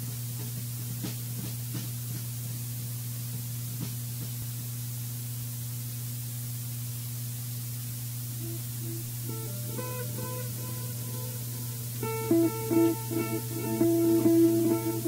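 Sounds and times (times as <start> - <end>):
electrical hum and hiss: 0.0 - 15.0
guitar picking notes: 8.4 - 15.0.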